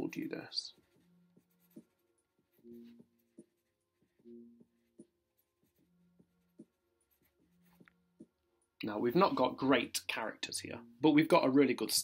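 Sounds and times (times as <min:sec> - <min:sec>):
pencil writing on paper: 0:00.8 - 0:07.8.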